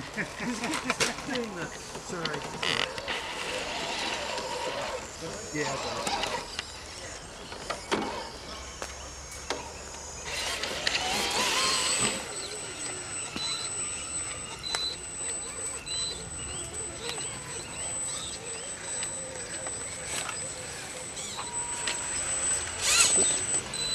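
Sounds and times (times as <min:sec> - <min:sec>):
small electric motors whining: 0:00.0 - 0:23.9
thin high-pitched whine: 0:00.4 - 0:23.9.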